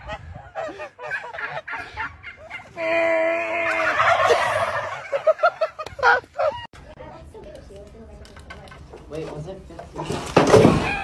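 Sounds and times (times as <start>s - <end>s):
turkeys gobbling: 0.0s - 2.8s, 3.6s - 6.5s.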